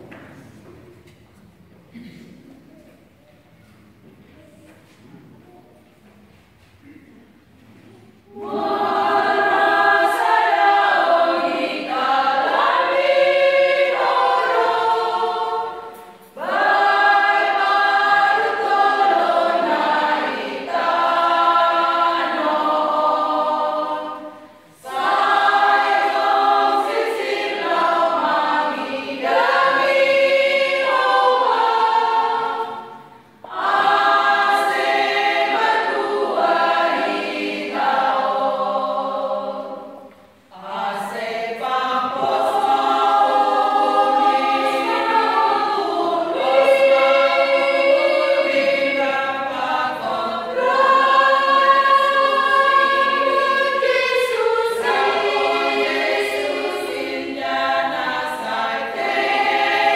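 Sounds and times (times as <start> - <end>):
women's choir singing a hymn: 7.7 - 59.9.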